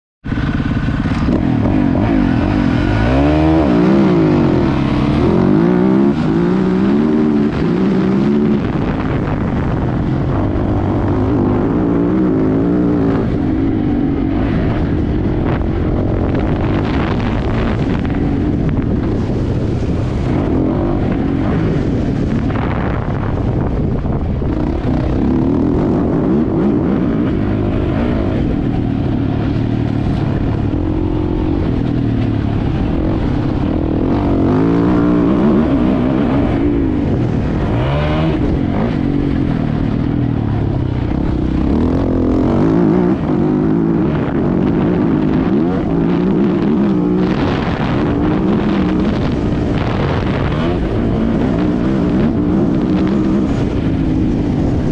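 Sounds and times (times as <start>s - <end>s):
motorcycle engine revving: 0.2s - 54.9s.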